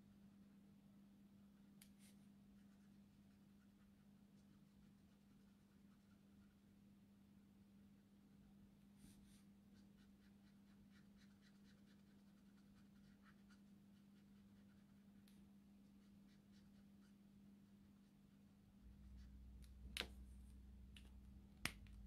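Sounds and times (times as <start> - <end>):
marker scratching on paper: 9.0 - 17.2
steady low hum: 11.3 - 22.0.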